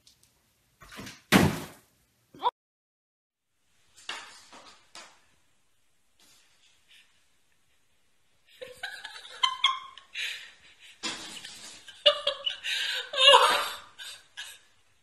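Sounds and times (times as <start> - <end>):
person laughing: 8.6 - 14.6.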